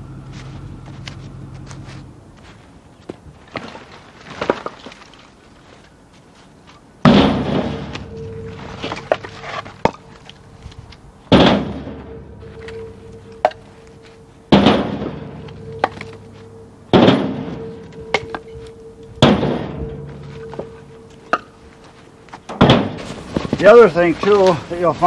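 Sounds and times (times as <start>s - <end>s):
firewood thudding onto a load: 3.1s - 5.3s, 7.0s - 10.3s, 11.3s - 12.8s, 14.5s - 16.2s, 16.9s - 18.5s, 19.2s - 21.6s, 22.3s - 24.6s.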